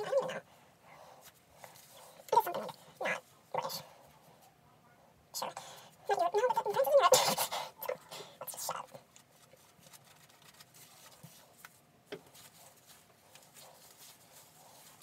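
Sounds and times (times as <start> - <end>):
gloved hands rustling hair: 9.1 - 15.0.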